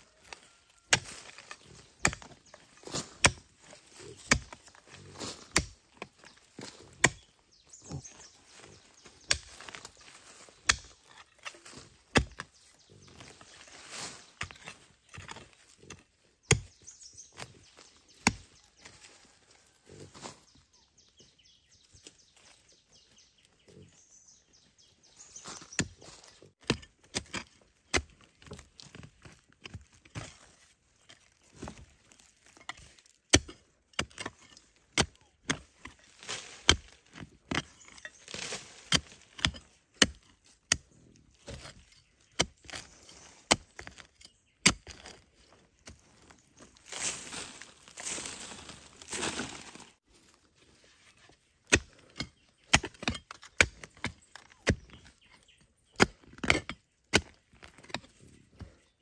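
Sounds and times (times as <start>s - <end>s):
hand hoe striking soil: 0.0s - 19.2s, 25.2s - 58.8s
earth crumbling: 44.6s - 50.0s.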